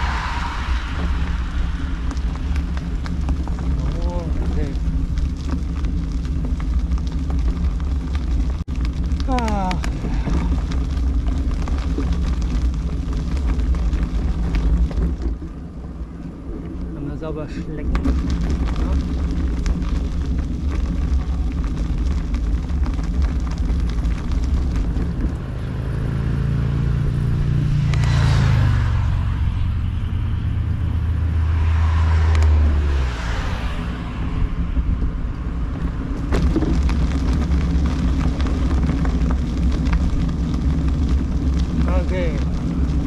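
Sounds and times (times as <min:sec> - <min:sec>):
vehicles passing by: 0:00.0 - 0:06.9, 0:22.3 - 0:43.0
vehicle rumbling on road: 0:00.0 - 0:43.0.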